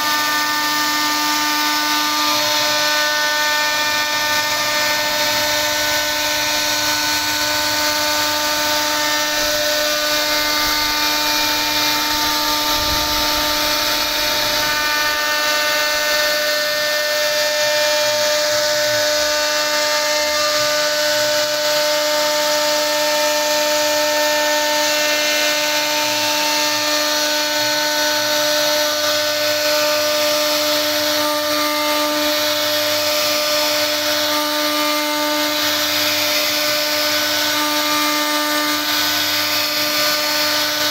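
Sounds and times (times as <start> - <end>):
router spindle whining: 0.0 - 40.9.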